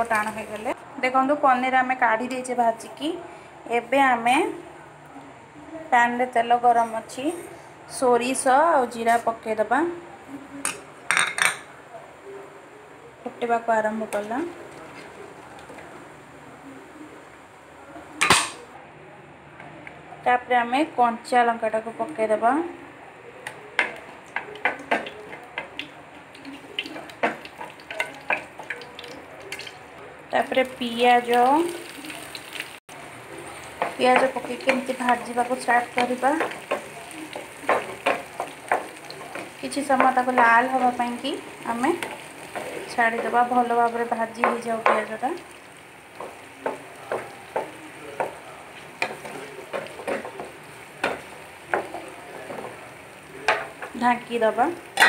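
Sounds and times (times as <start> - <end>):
seeds spluttering in hot oil: 23.8 - 55.0.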